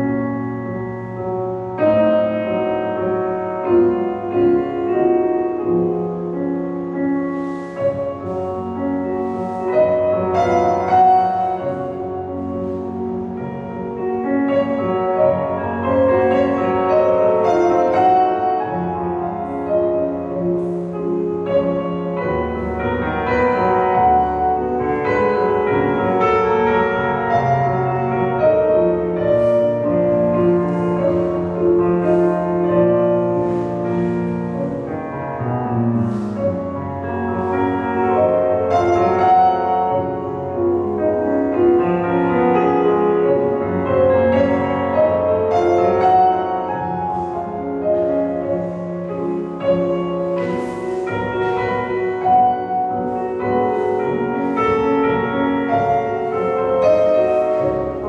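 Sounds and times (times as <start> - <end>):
classical piano music: 0.0 - 58.0.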